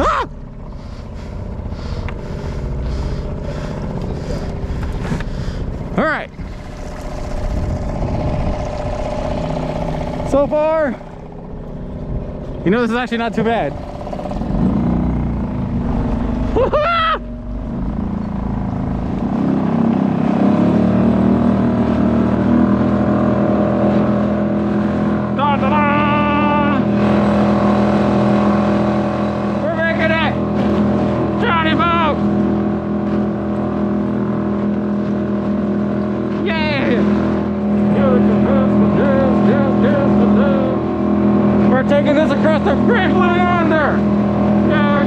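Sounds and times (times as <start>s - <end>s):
outboard motor puttering: 0.0s - 45.0s
water hissing alongside boat: 0.6s - 11.9s.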